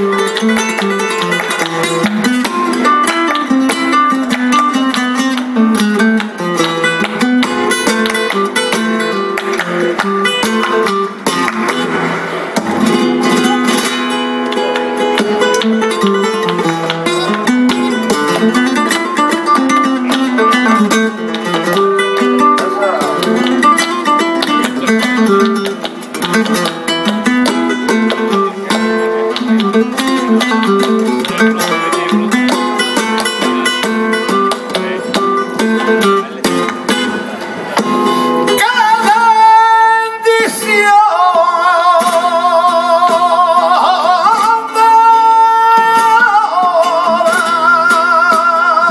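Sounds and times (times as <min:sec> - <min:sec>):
hand clapping: 0:00.0 - 0:12.0, 0:12.6 - 0:39.2
flamenco acoustic guitar: 0:00.0 - 0:48.9
man singing: 0:38.5 - 0:48.9.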